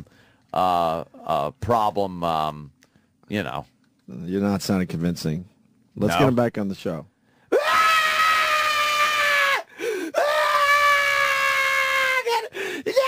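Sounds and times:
person crying out loudly: 0:07.5 - 0:13.0.

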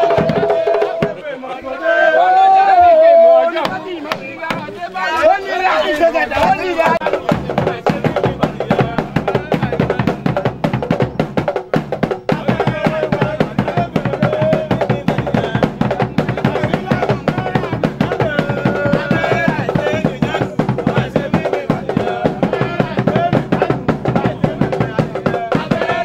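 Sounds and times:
drum ensemble playing: 0:00.0 - 0:01.2, 0:02.7 - 0:05.2, 0:06.3 - 0:26.0
person singing: 0:12.3 - 0:26.0.

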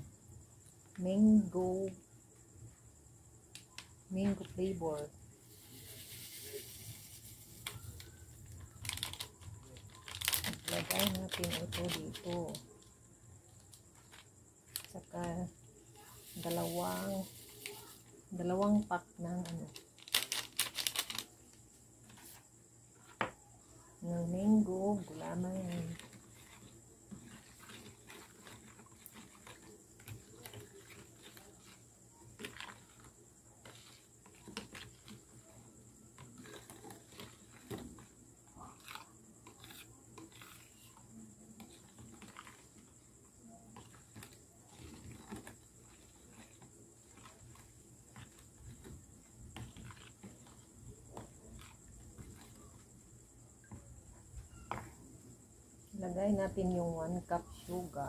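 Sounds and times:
spoon scraping plastic tub: 0:04.2 - 0:12.6, 0:16.1 - 0:19.6, 0:24.3 - 0:53.0.

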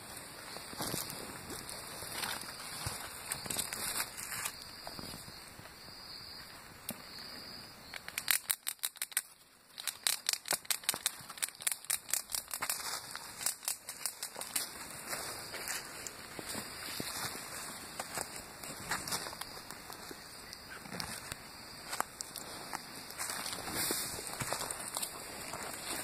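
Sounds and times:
dry leaves crackling and rustling: 0:09.8 - 0:20.1.

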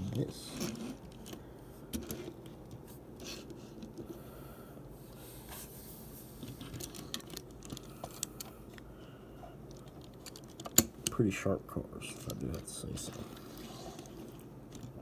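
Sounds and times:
toy cars moved on wooden table: 0:12.2 - 0:14.9.

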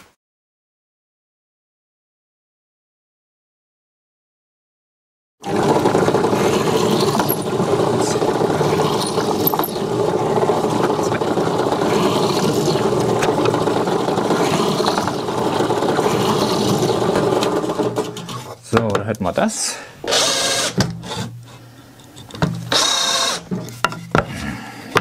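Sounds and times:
drill press drilling wood: 0:05.4 - 0:18.6, 0:20.0 - 0:21.5, 0:22.4 - 0:24.2.

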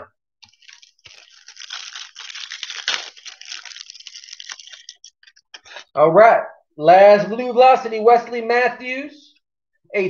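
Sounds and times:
foil wrapper tearing and crinkling: 0:00.4 - 0:05.8.

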